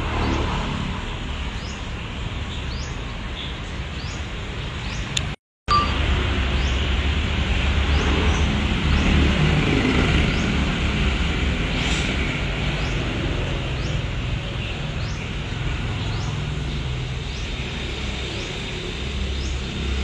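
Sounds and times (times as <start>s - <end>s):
high rising chirp: 5.7s - 6.8s
hiss: 11.6s - 12.7s.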